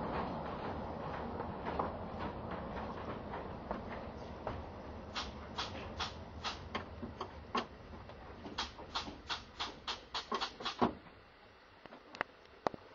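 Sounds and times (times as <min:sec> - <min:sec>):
carriage wheels clicking over rail joints: 0:05.1 - 0:07.7, 0:08.4 - 0:11.0.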